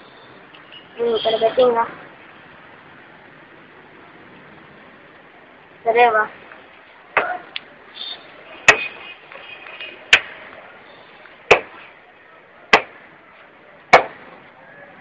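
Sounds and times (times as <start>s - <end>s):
sharp knocks: 11.5s - 11.8s, 12.7s - 13.0s, 13.9s - 14.2s.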